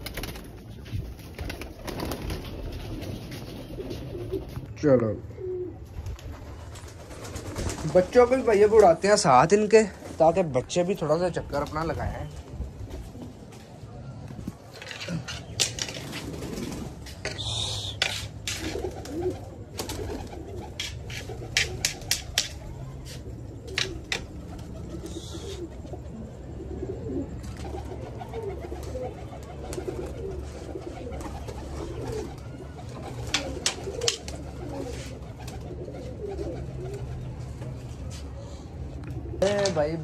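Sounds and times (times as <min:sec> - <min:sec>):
pigeons cooing: 0:01.6 - 0:05.9, 0:14.7 - 0:39.5.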